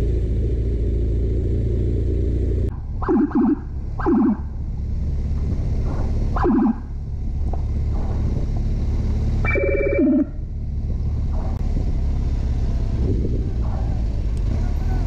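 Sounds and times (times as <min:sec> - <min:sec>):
vehicle road and engine rumble: 0:00.0 - 0:15.0
electronic siren blips: 0:03.0 - 0:04.6, 0:06.3 - 0:07.0, 0:09.4 - 0:10.4.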